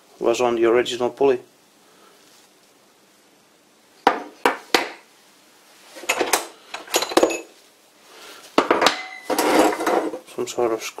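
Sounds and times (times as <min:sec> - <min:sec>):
metal clinking on wooden workbench: 0:06.0 - 0:07.5, 0:08.6 - 0:10.2.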